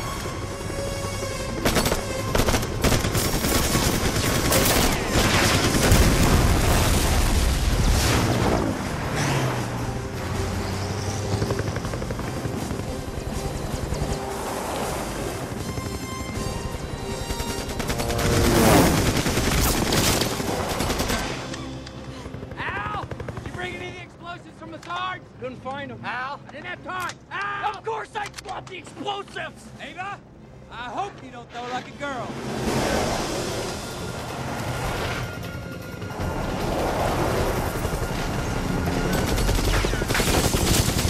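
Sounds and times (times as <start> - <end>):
film score music: 0.0 - 41.0
rapid automatic gunfire: 1.6 - 6.5, 17.3 - 21.4, 38.8 - 41.0.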